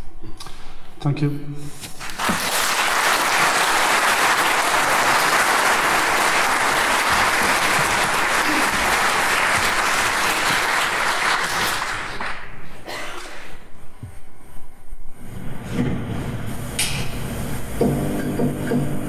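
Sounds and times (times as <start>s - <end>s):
audience applauding: 2.0s - 12.7s.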